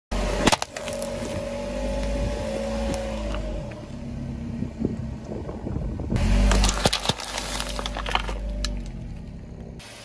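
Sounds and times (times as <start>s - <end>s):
car engine humming: 0.1s - 10.0s
tyre crushing a plastic box: 6.4s - 8.8s.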